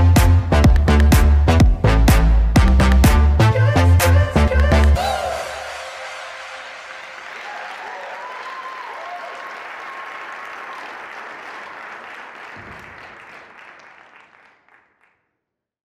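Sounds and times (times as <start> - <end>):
audience applauding: 5.4 - 15.2.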